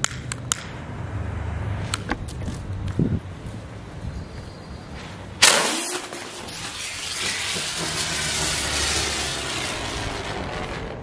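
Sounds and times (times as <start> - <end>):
firecracker burst: 5.4 - 11.0
firecracker hissing: 5.4 - 11.0.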